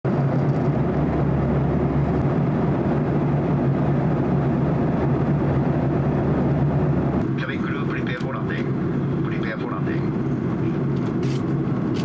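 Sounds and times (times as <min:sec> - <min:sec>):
constant low hum: 0:00.1 - 0:12.0.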